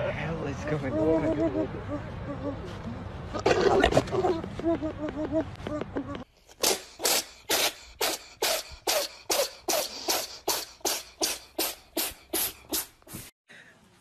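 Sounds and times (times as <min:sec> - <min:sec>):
rhythmic breathy huffs: 0:06.2 - 0:13.9.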